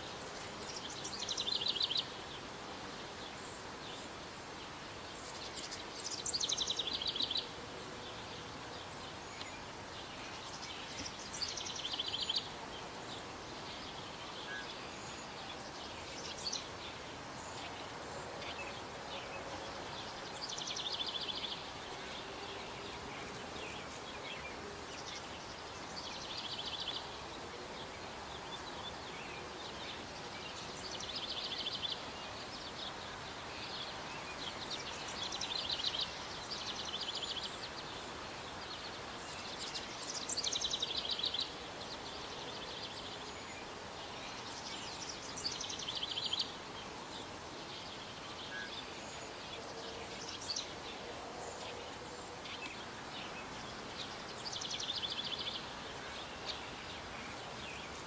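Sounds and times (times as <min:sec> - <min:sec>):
small bird singing: 0:00.0 - 0:02.4, 0:05.2 - 0:12.6, 0:28.3 - 0:58.0
outdoor background noise: 0:00.0 - 0:58.0.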